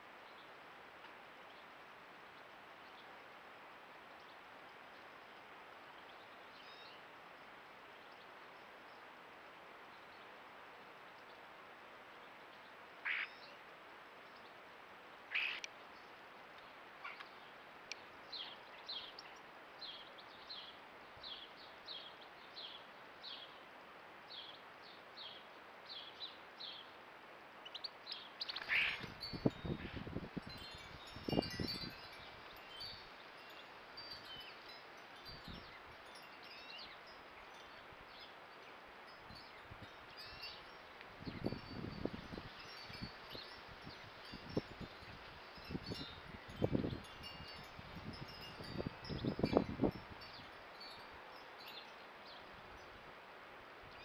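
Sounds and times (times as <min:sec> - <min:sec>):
faint steady hiss: 0:00.0 - 0:54.0.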